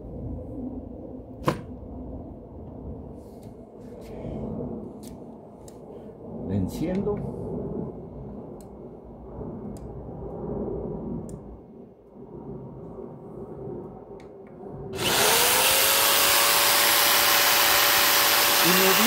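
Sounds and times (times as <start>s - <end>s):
electric jigsaw motor running: 15.0s - 19.0s.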